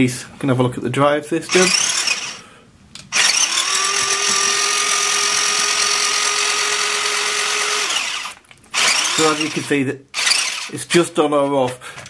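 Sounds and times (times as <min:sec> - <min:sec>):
toy truck motor whine: 0:01.5 - 0:02.4, 0:03.1 - 0:10.8.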